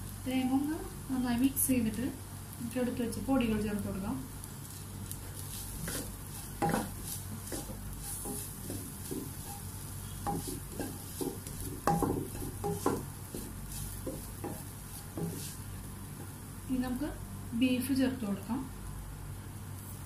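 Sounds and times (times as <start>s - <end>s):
soft frying sizzle: 0.0s - 20.0s
wooden spatula scraping a pan: 4.6s - 16.3s
spatula knocking against pan: 6.6s - 15.5s.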